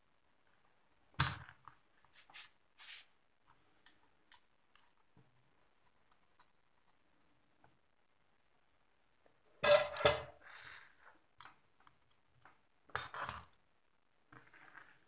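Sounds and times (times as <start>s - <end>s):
small clicks and rustles: 1.4s - 7.9s.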